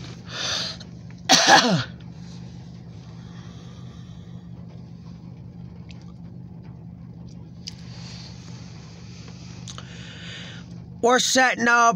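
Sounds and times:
car cabin hum: 0.0s - 11.9s
breathy intake: 0.3s - 0.8s, 9.7s - 10.6s
person sneezing: 1.3s - 1.9s.

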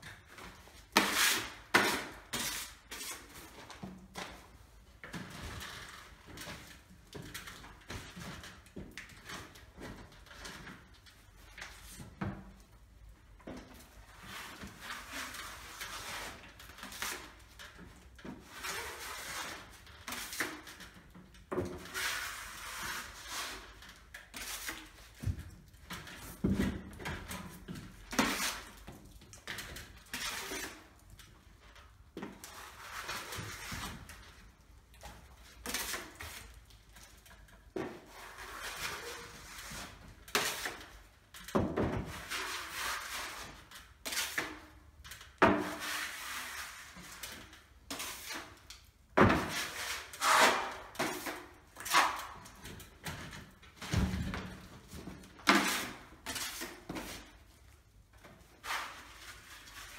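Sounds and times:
filler knife scraping wall: 13.6s - 34.4s, 35.0s - 44.8s, 45.4s - 48.6s, 49.2s - 57.6s, 58.2s - 59.9s.

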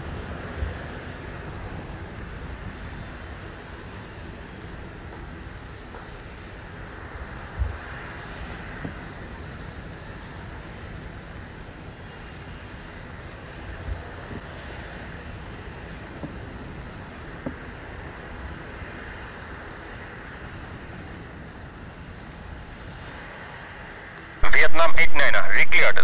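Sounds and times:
jet engine roar: 22.3s - 26.0s.

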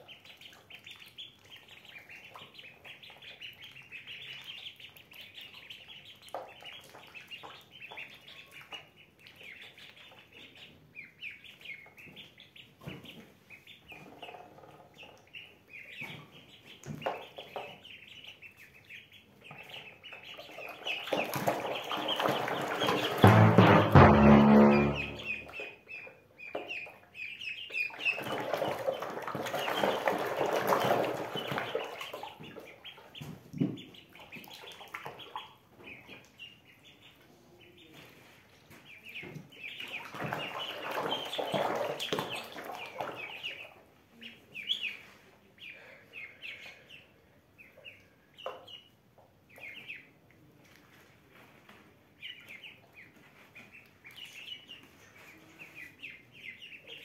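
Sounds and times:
ducklings peeping: 0.0s - 57.0s
water splashing: 20.2s - 25.6s, 28.0s - 33.0s, 39.6s - 43.7s.

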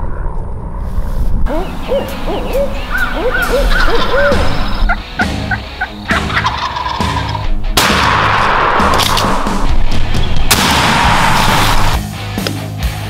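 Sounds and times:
wild turkeys calling: 1.5s - 7.6s.

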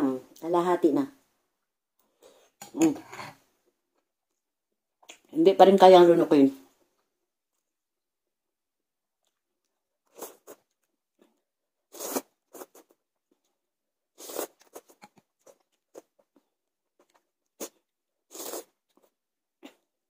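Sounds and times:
noodles being slurped: 11.9s - 13.0s, 14.2s - 16.2s, 17.5s - 18.9s.

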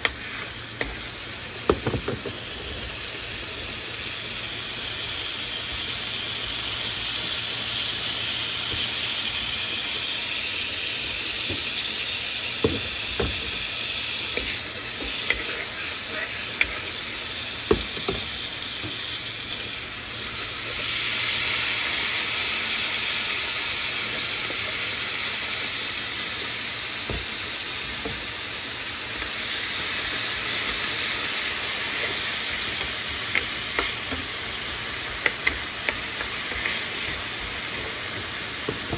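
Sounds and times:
spatula stirring corn: 0.0s - 1.2s, 14.3s - 18.2s, 30.0s - 38.9s
margarine sizzling in frying pan: 0.0s - 38.9s.

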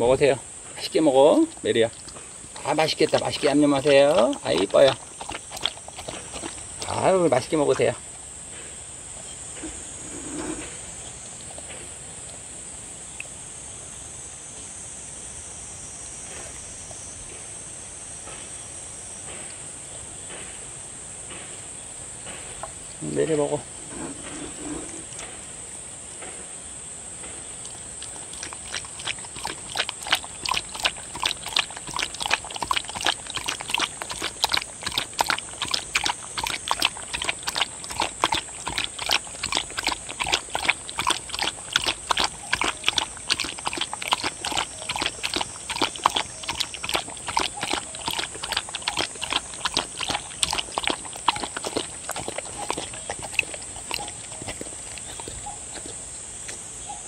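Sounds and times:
dog lapping liquid: 0.0s - 8.3s, 9.0s - 13.4s, 22.3s - 25.6s, 27.4s - 56.6s.

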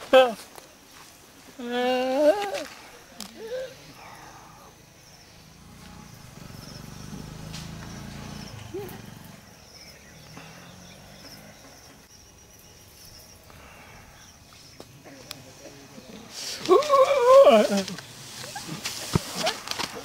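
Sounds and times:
steady low hum: 3.0s - 16.3s.

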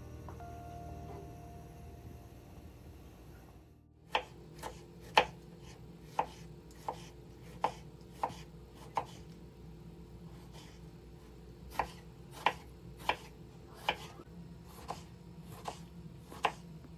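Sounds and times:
knife chopping on plastic board: 4.1s - 9.2s, 11.7s - 14.1s, 14.7s - 16.6s.

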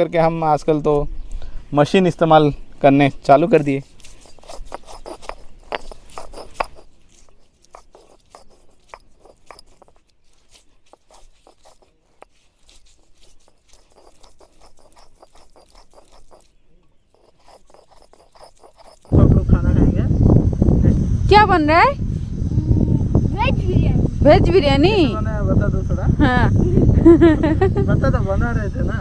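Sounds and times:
stone roller scraping on stone slab: 3.6s - 19.4s.

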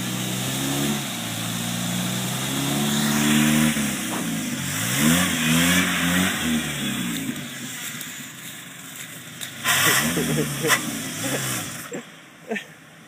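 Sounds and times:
engine revving hard: 0.0s - 7.7s, 9.6s - 12.0s
tyres spinning through mud: 2.1s - 12.0s.

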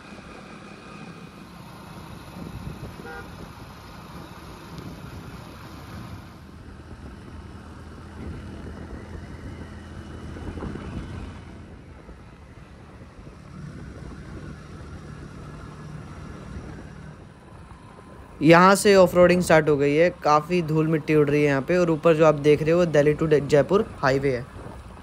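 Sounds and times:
motorcycle engine running: 0.0s - 18.4s
road and wind noise: 0.0s - 25.0s.

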